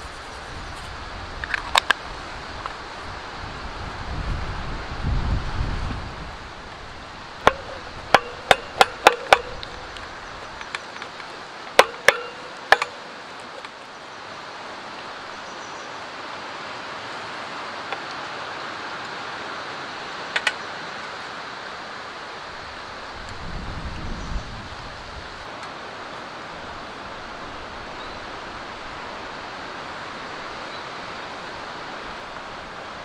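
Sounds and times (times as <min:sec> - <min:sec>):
steady hiss: 0:00.0 - 0:33.0
wooden spoon clicking on metal tin: 0:07.5 - 0:13.8.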